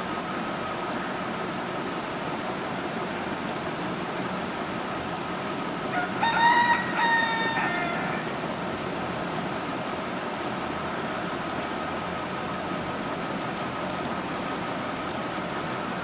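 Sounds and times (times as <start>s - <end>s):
rooster crowing: 5.9s - 8.4s.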